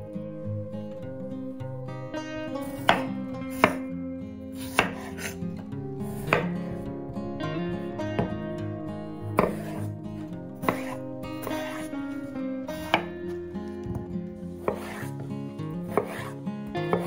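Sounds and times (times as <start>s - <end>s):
acoustic guitar music: 0.0s - 17.0s
knife chopping on wooden board: 2.8s - 3.9s, 4.6s - 5.4s, 9.4s - 9.9s, 10.6s - 11.9s, 12.8s - 13.1s, 13.9s - 15.2s, 15.9s - 17.0s.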